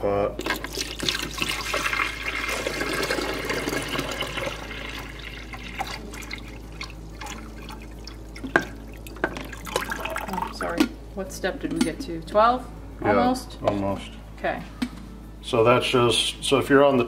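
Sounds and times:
water pouring: 0.4s - 10.7s.

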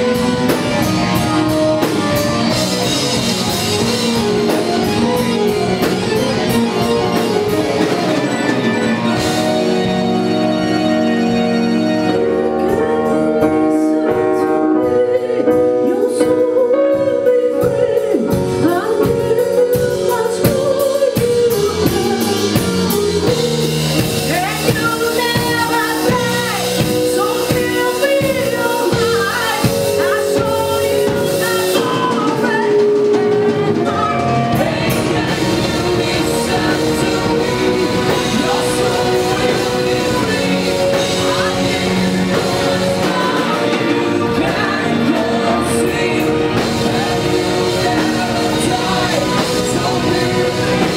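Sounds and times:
drum kit: 0.0s - 50.9s
rock band playing: 0.0s - 50.9s
woman singing: 12.8s - 50.9s.

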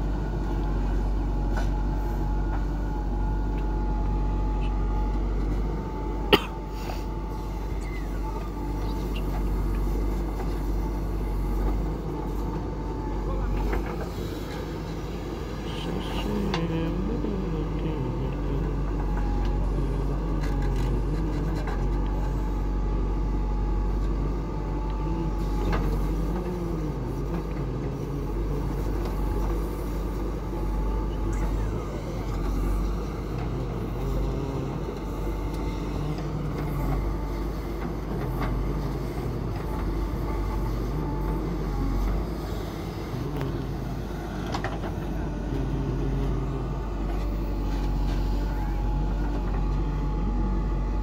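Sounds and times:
diesel engine under load: 0.0s - 51.0s.

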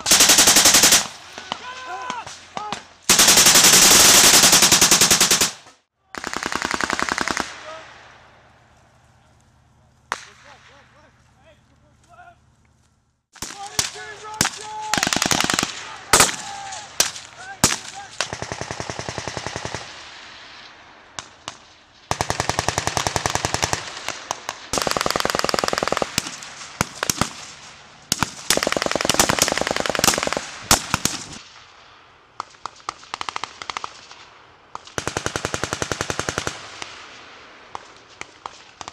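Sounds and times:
automatic gunfire bursts: 0.0s - 1.2s, 3.1s - 5.6s, 6.2s - 7.6s, 14.9s - 16.4s, 24.7s - 27.4s, 28.1s - 31.4s.

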